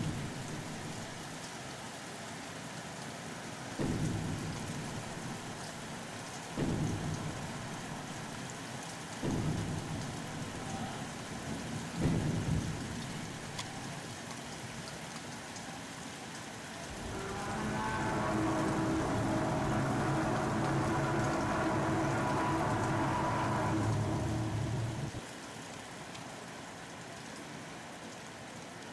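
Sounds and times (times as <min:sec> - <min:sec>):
steady rain falling: 0:00.0 - 0:28.9
deep booms: 0:03.8 - 0:06.0, 0:06.6 - 0:08.4, 0:09.3 - 0:10.6, 0:16.9 - 0:25.2.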